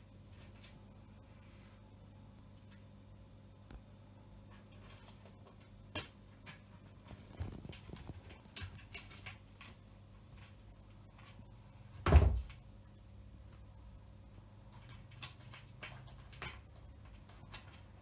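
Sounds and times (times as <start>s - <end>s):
loud thump against cabinet: 12.0s - 12.5s.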